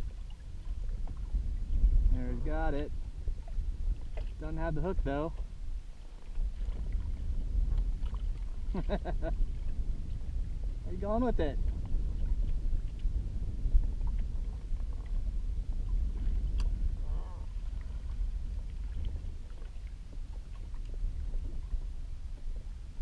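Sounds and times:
small waves lapping: 0:00.0 - 0:23.0
wind rumble: 0:00.0 - 0:23.0
faint tick: 0:16.5 - 0:16.7.

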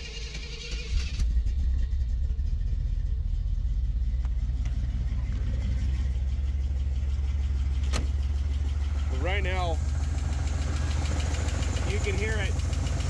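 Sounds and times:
starter motor whirring: 0:00.0 - 0:02.2
car engine idling: 0:00.0 - 0:13.0.

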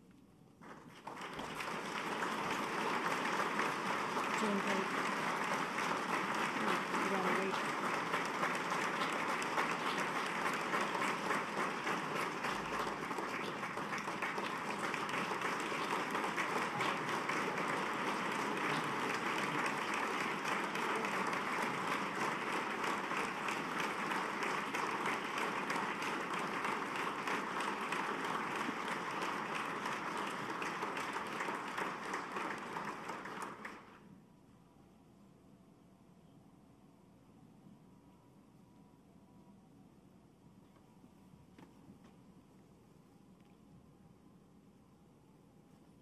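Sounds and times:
crowd clapping: 0:00.6 - 0:34.0.

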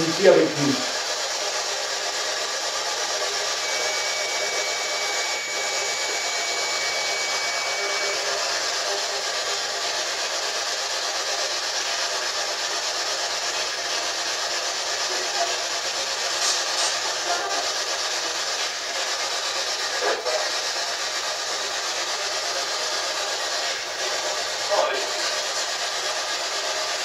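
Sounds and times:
faint high whistle: 0:03.6 - 0:08.7.

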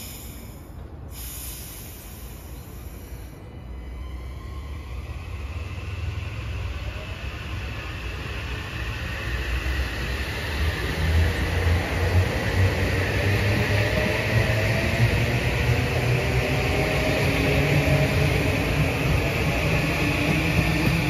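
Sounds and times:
wheels rumbling on rails: 0:02.1 - 0:21.0.

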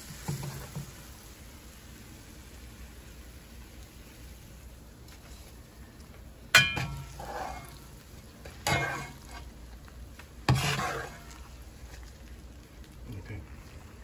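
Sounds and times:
spoon scraping and oil sizzling: 0:00.0 - 0:13.0
metal spoon clanking on frying pan: 0:06.5 - 0:07.2, 0:08.6 - 0:09.3.

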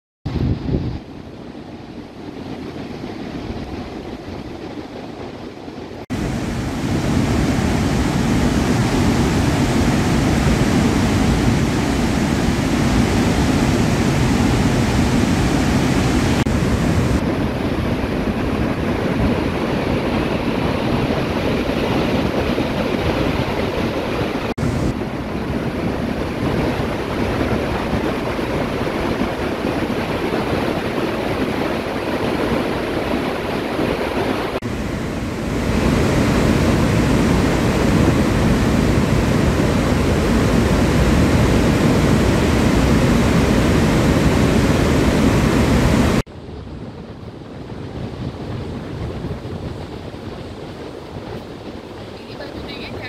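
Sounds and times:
floodwater rushing from spillway: 0:06.1 - 0:46.2.

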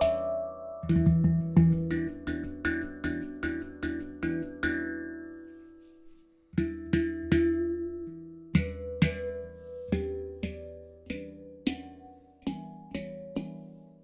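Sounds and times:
handpan melody: 0:00.0 - 0:14.0.

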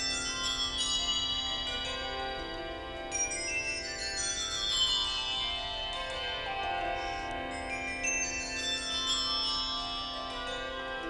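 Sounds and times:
handbells ringing changes: 0:00.0 - 0:11.0.

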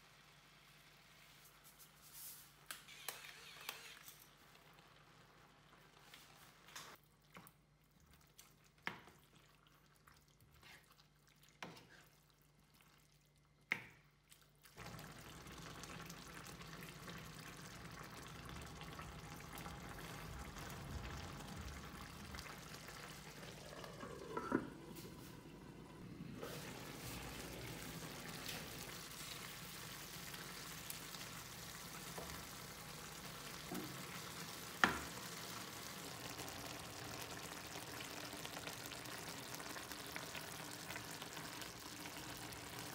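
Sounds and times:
food sizzling in a frying pan: 0:14.8 - 0:42.9.

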